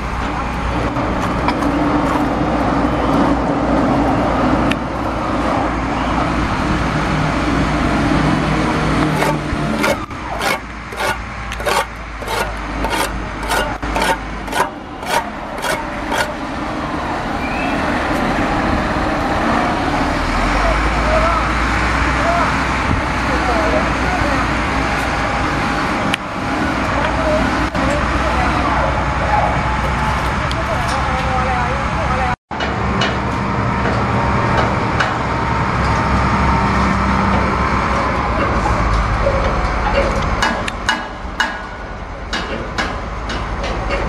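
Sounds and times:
trowel scraping mortar on concrete: 9.0s - 16.4s.

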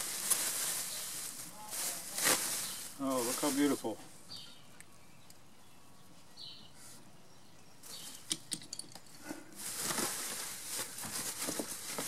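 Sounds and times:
plastic bags crinkling: 0.0s - 3.8s, 9.6s - 12.0s
faint bird chirp: 4.2s - 8.4s.

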